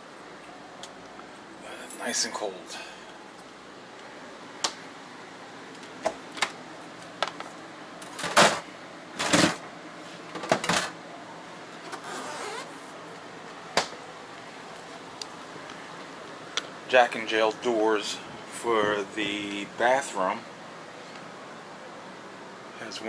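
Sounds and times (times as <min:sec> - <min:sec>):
doors and latches opening and shutting: 0:10.3 - 0:11.0.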